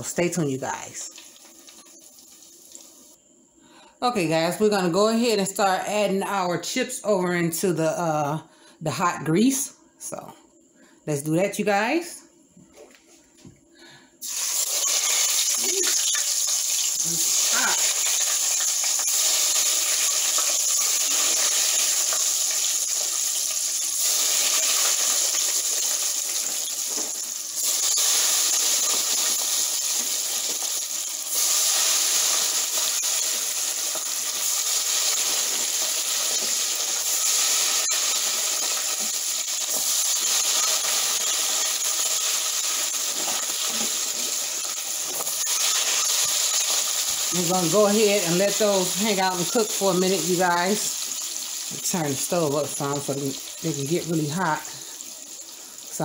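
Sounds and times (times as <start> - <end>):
fries sizzling in hot oil: 0.0 - 3.4, 14.2 - 56.0.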